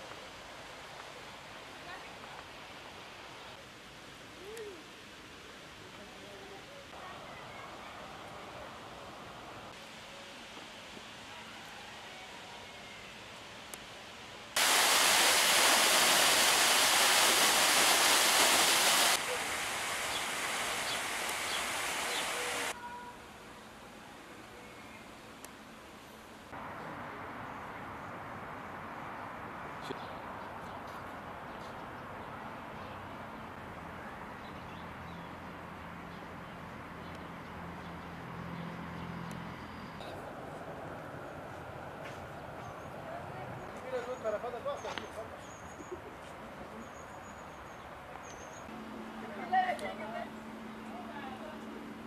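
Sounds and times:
even hiss: 0.0s - 24.2s
fountain jet rushing and splashing: 14.6s - 22.8s.

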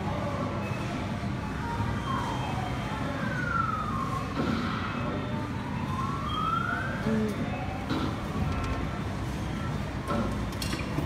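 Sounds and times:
arcade hubbub: 0.0s - 11.0s
wailing siren-like game tone: 1.9s - 7.8s.

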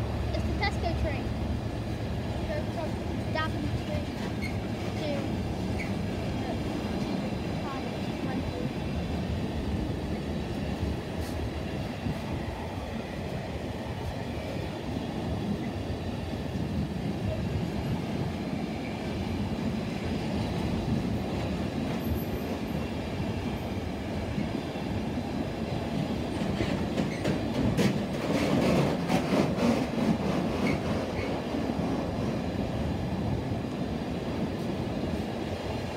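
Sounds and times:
freight train wheels rumbling: 0.0s - 35.9s
wheels clacking over rail joints: 26.3s - 32.1s.

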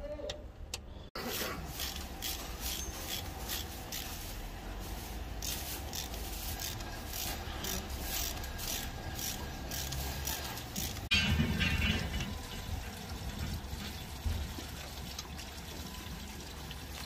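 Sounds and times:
metal parts scraping: 1.4s - 4.3s, 5.0s - 12.8s.

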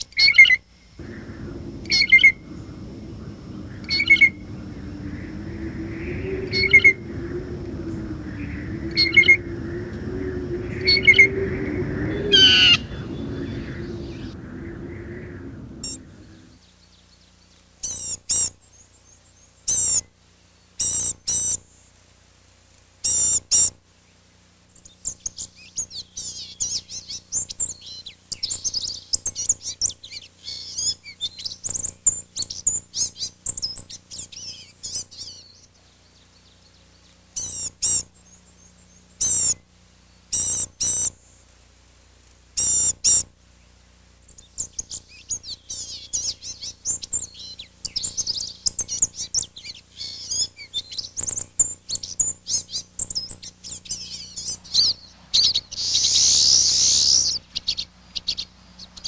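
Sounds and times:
birds twittering as a flock: 1.0s - 16.6s, 44.6s - 59.0s
loud short bird calls: 1.0s - 16.6s.

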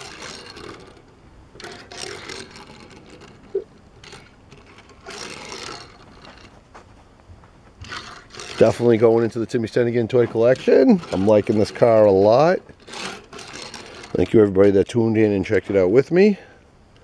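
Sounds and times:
toy car wheels whirring on wood: 0.0s - 6.7s, 7.8s - 14.6s.

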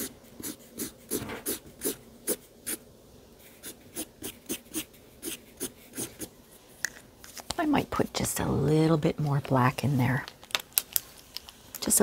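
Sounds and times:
marker scratching on paper: 0.0s - 2.8s, 3.4s - 6.3s.

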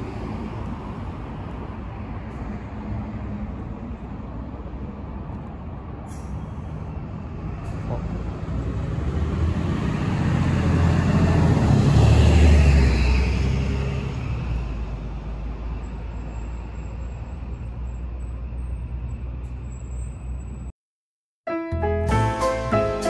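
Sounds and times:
bus engine pulling away: 0.0s - 20.7s
street traffic: 0.0s - 20.8s.

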